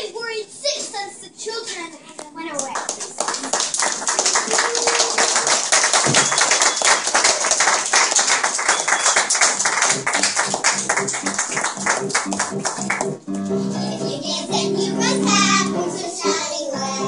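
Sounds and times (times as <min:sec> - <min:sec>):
audience applauding: 0:02.6 - 0:13.2.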